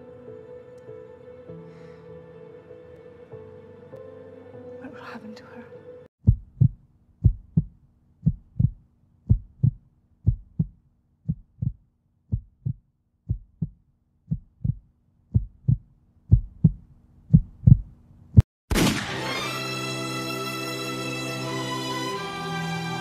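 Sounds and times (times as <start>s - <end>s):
heartbeat thumps: 6.2s - 18.5s.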